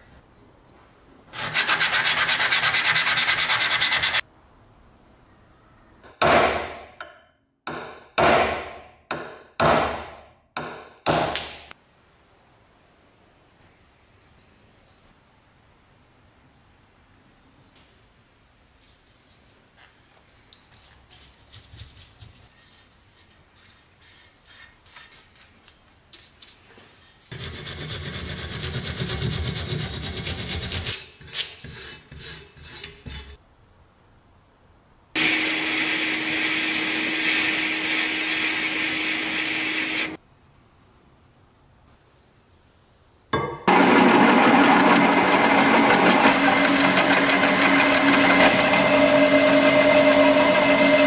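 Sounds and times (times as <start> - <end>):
wire brush scrubbing metal: 1.4 - 4.2, 27.3 - 33.4
paintbrush scraping on metal: 26.9 - 33.4
loud machine noise with hum: 35.2 - 40.2, 43.7 - 51.0.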